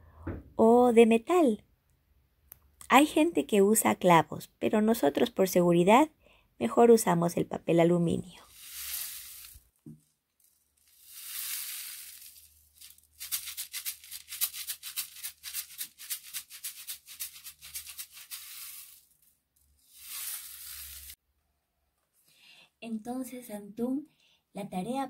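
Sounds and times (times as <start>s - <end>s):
rain stick rushing hiss: 8.4s - 9.7s, 10.8s - 19.2s, 19.8s - 21.2s.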